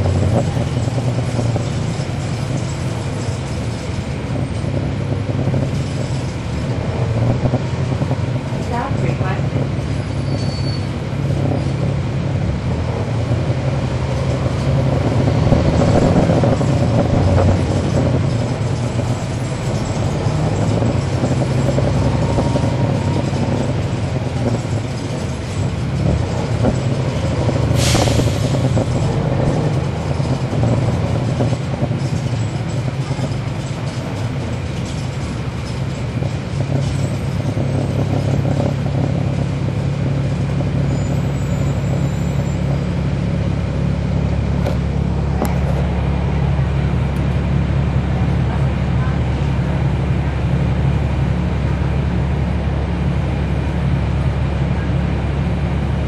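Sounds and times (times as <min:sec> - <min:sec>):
bus diesel engine drone: 0:00.0 - 0:56.0.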